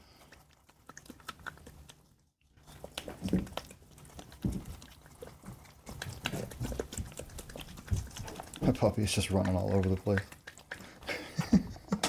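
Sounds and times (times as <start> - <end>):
puppy claws clicking and tapping: 0.3 - 2.0, 2.8 - 12.0.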